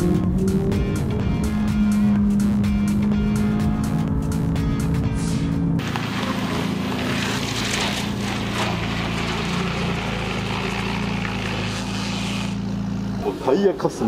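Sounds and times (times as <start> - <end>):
car engine idling: 0.8 - 14.0.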